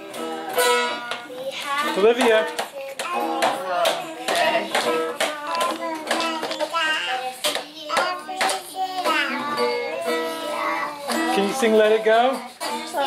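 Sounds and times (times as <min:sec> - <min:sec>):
child singing and calling out: 0:01.3 - 0:11.7.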